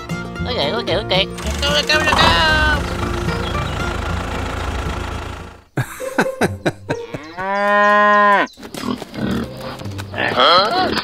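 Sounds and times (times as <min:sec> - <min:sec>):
cow mooing: 0:01.4 - 0:03.6
low motor rumble: 0:01.4 - 0:05.7.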